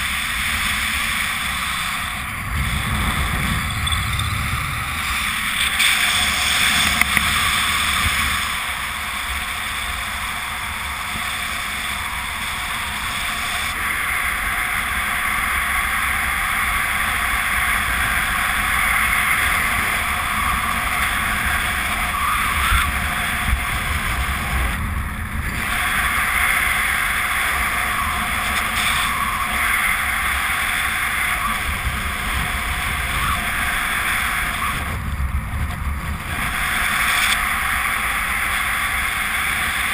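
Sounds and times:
low buffeting rumble: 0:00.0 - 0:13.4
wind rushing over microphone: 0:00.0 - 0:39.9.

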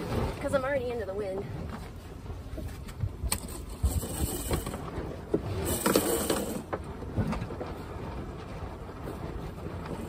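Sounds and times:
rigging clicks and knocks: 0:02.6 - 0:10.0
halyard rasping through blocks: 0:03.3 - 0:06.8.

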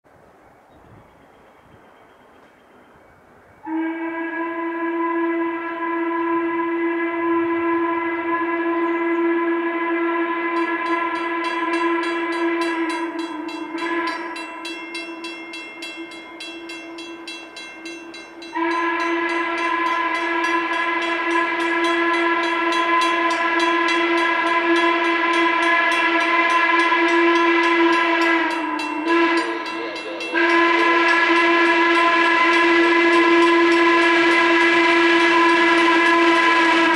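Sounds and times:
steam locomotive whistle blasts: 0:03.6 - 0:36.9
crossing bell ringing: 0:10.5 - 0:36.9.

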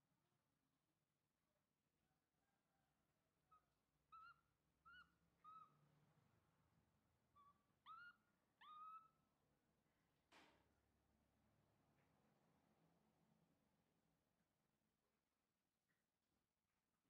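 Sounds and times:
baby monkey coo calls: 0:03.5 - 0:05.8, 0:07.4 - 0:09.2.

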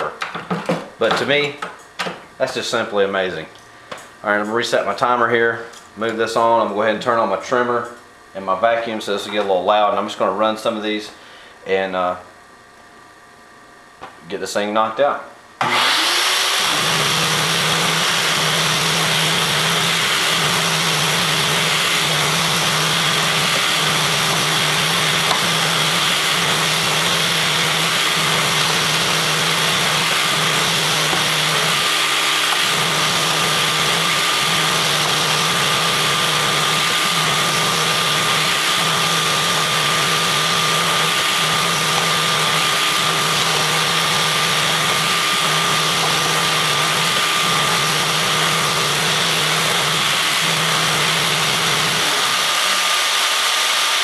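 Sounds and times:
trimmer motor and vacuum whirring: 0:15.6 - 0:54.0.

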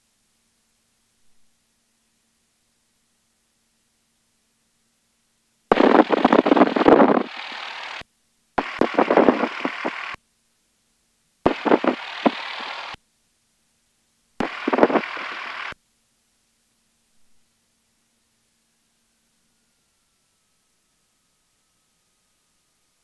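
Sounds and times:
crackling radio static: 0:05.7 - 0:08.0, 0:08.6 - 0:10.2, 0:11.4 - 0:13.0, 0:14.4 - 0:15.8.

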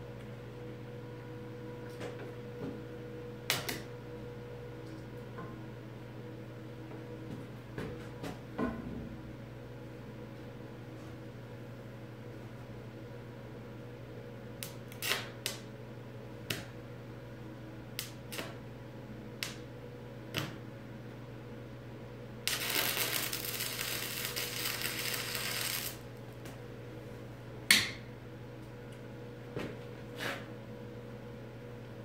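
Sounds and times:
welding arc hissing crackle: 0:14.6 - 0:15.6, 0:18.0 - 0:18.6, 0:22.4 - 0:26.2.

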